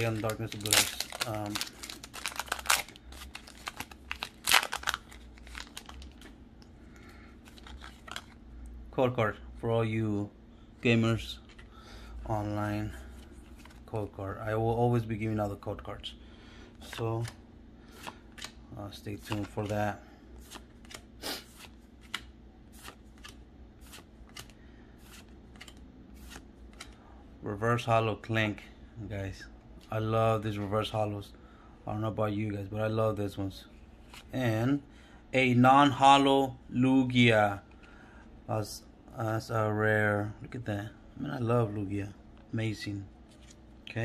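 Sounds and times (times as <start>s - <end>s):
foil wrapper crinkling: 0.0s - 6.3s
cards swishing: 20.4s - 27.0s.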